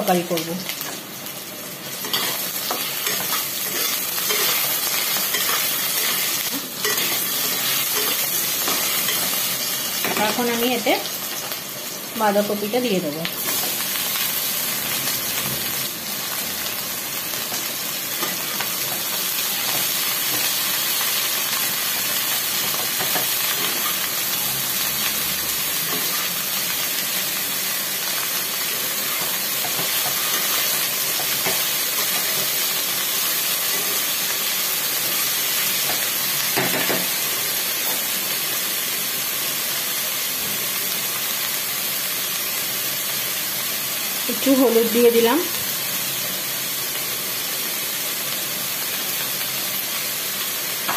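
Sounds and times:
cabbage sizzling in hot oil: 0.0 - 50.9
spatula scraping vegetables: 2.0 - 10.6.

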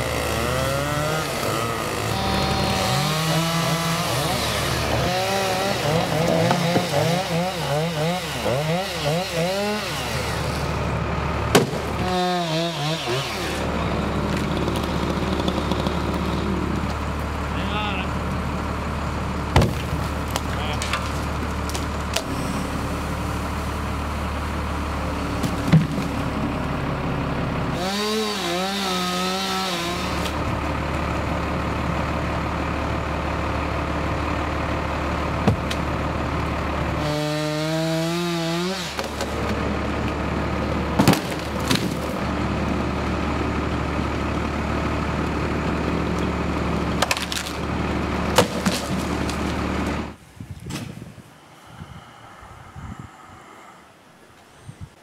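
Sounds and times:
chainsaw cutting wood: 0.0 - 17.0, 27.7 - 30.6, 36.8 - 40.3, 40.9 - 42.4, 46.1 - 50.2
engine droning: 0.0 - 50.4, 51.2 - 55.0.

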